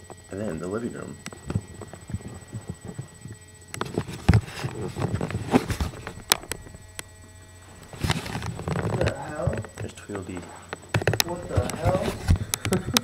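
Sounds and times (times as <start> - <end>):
camera handling thumps and clicks: 10.7 - 13.0.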